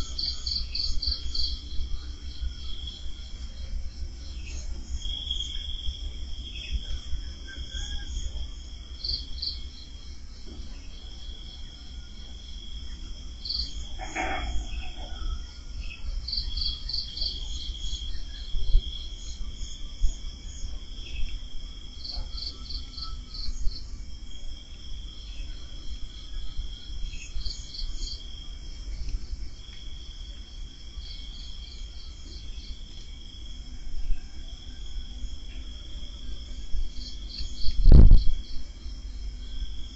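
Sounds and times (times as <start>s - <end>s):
crickets chirping: 0.0s - 39.9s
low rumble: 13.4s - 16.8s.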